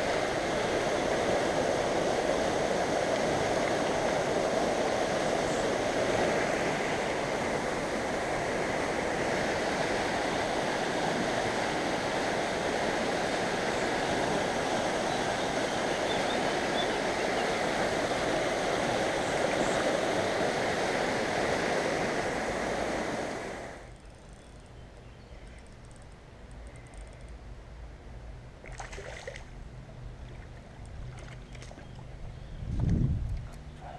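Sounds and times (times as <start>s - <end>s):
river water rushing over stones: 0.0s - 23.8s.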